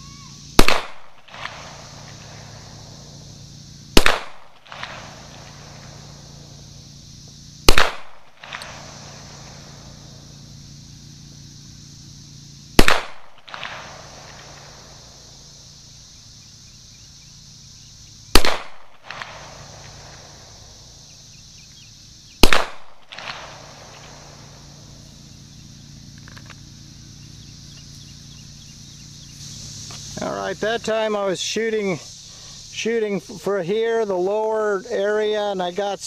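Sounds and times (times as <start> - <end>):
pistol shots with echo: 0.6 - 1.7, 4.0 - 5.1, 7.7 - 8.6, 12.8 - 13.8, 18.4 - 19.4, 22.4 - 23.5.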